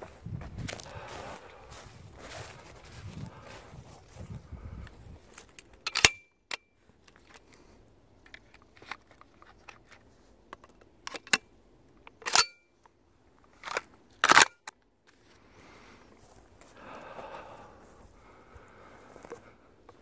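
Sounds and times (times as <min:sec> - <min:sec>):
gun handling clicks: 0:05.4 - 0:07.6, 0:08.2 - 0:14.8.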